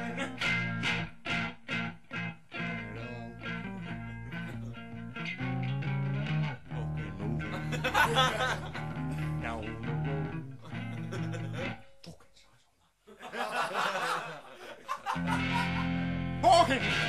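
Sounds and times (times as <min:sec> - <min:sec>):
bass guitar line: 0:00.0 - 0:11.8, 0:15.2 - 0:17.0
electric guitar chords: 0:00.0 - 0:11.8, 0:15.2 - 0:17.0.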